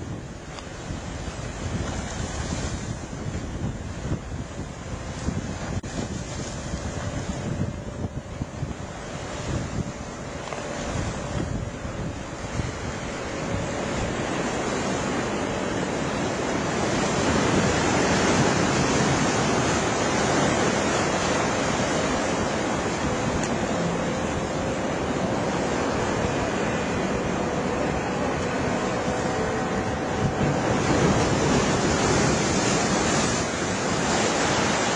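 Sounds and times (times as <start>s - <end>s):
distant outboard motor drone: 0.0s - 34.9s
wind buffeting microphone: 0.0s - 34.9s.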